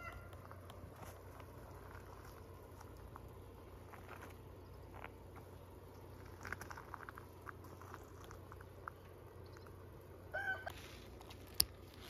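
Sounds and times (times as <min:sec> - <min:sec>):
low steady hum: 0:00.0 - 0:12.0
faint clicks and rustles: 0:00.3 - 0:10.1, 0:10.7 - 0:12.0.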